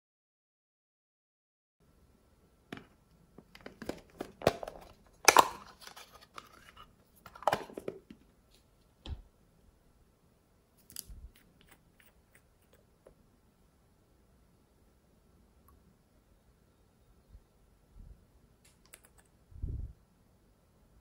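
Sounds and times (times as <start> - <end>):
plastic containers clattering: 2.7 - 8.2.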